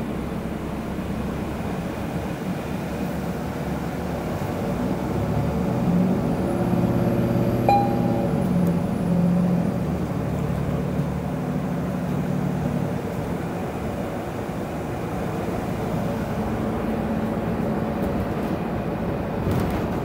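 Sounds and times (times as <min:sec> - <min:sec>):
bus engine and road noise: 0:00.0 - 0:20.0
brief high tone with click: 0:07.7 - 0:08.6.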